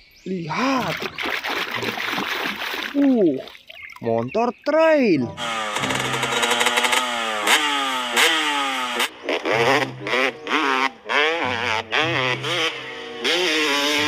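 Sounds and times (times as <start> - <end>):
dirt bike engine revving: 5.4 - 14.0.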